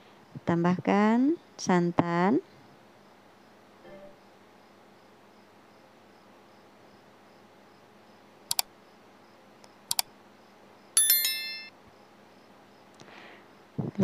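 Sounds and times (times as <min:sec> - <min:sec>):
faint background noise: 0:00.0 - 0:14.0
mouse double clicks: 0:08.5 - 0:08.7, 0:09.6 - 0:10.1
bell notification chime: 0:11.0 - 0:11.7.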